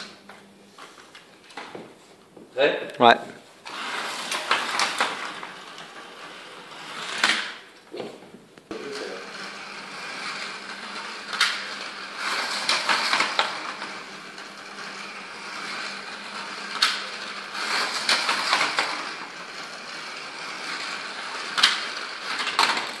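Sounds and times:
electric motors whining: 3.6 - 23.0
wheels rattling along track: 8.8 - 23.0.

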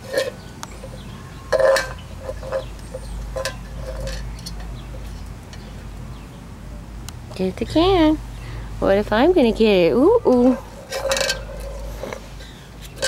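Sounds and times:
tin can clattering on concrete: 0.0 - 4.6, 10.9 - 11.8.

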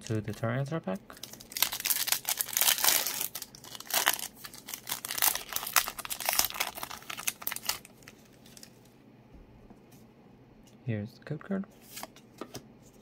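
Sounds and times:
foil wrapper crinkling and tearing: 1.2 - 8.8.

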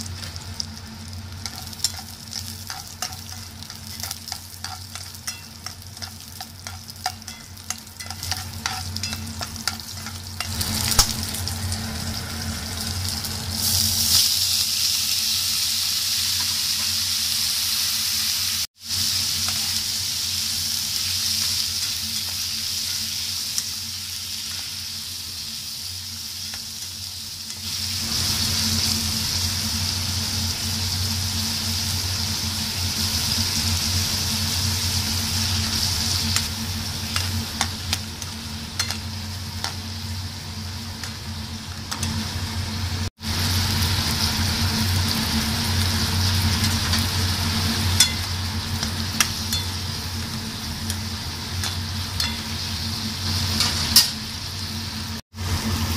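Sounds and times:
vegetables sizzling in hot oil: 0.0 - 55.9
spatula scraping and tapping pan: 1.4 - 11.1.

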